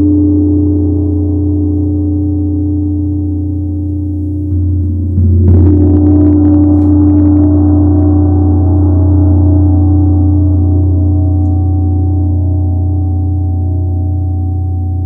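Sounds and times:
gong ringing: 0:04.4 - 0:12.8.

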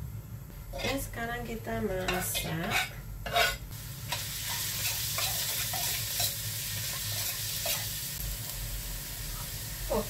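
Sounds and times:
metal ladle scraping a wok: 0:00.7 - 0:01.1, 0:02.0 - 0:06.4
garlic sizzling in hot oil: 0:02.2 - 0:10.0.

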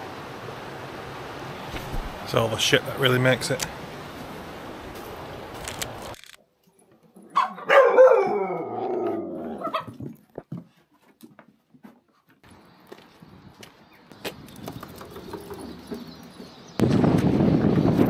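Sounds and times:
dog yelping: 0:07.3 - 0:10.0
dog howling: 0:07.6 - 0:09.9
wind noise on microphone: 0:16.6 - 0:18.0.

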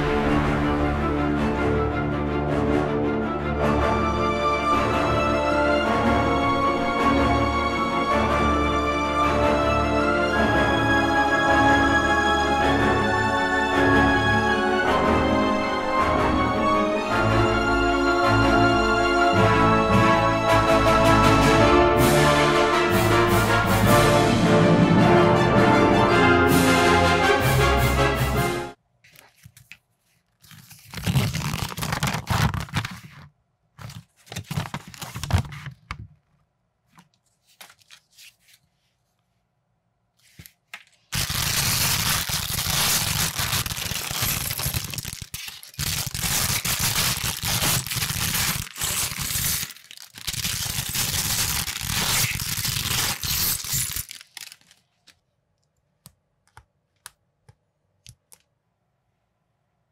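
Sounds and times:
plastic bag crinkling: 0:30.4 - 0:33.2, 0:33.8 - 0:35.7, 0:41.0 - 0:55.2.

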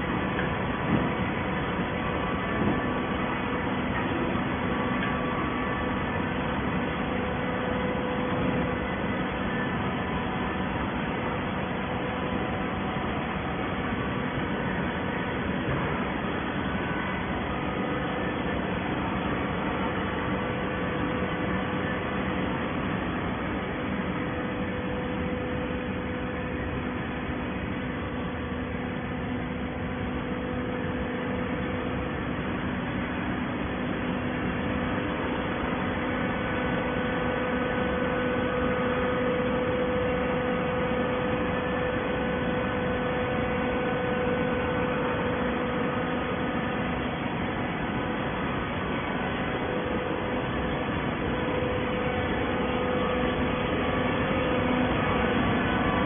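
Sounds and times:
hydraulic baler humming: 0:00.0 - 0:56.0.

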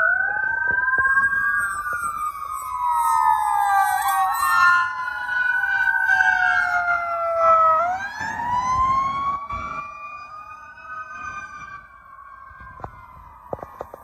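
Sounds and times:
rising and falling siren wail: 0:00.0 - 0:14.0
two-tone siren: 0:00.0 - 0:14.0.

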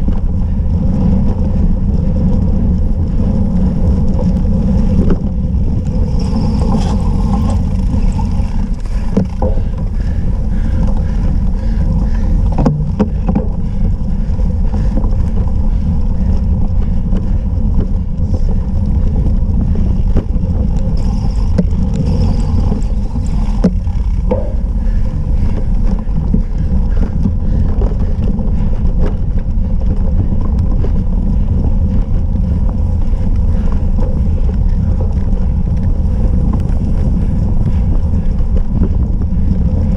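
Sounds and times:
bike rattling over bumps: 0:00.0 - 0:39.9
wind buffeting microphone: 0:00.0 - 0:39.9.

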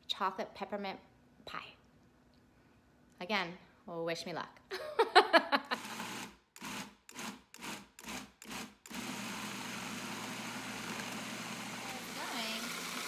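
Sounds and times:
food processor blending: 0:05.8 - 0:13.0.

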